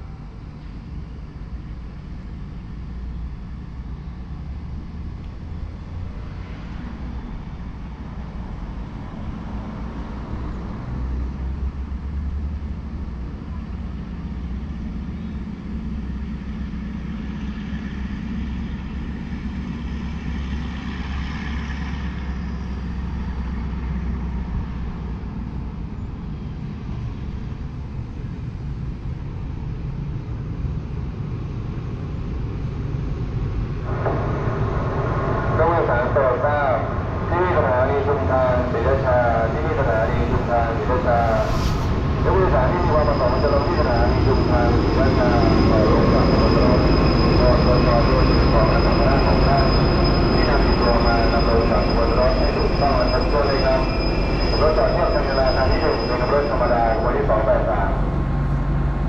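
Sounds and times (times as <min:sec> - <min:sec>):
distant motor vehicles rumbling: 0:32.0 - 0:59.0.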